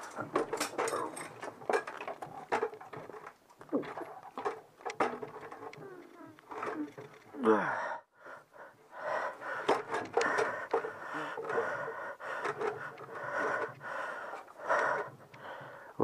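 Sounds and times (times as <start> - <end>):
man breathing hard and straining: 3.8 - 16.0.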